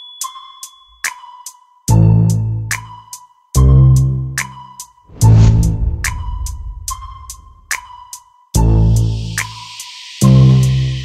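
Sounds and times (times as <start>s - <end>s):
deep bass note: 5.1s - 7.8s.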